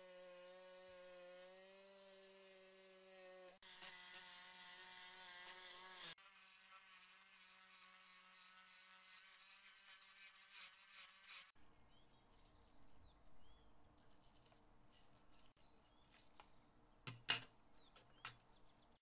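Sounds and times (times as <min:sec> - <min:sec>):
power tool motor buzzing: 0:00.0 - 0:11.6.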